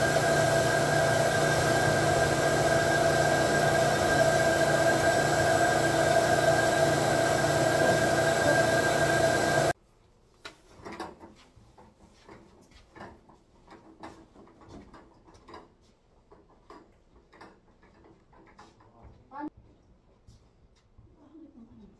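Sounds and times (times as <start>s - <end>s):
vacuum motor whining: 0.0s - 9.8s.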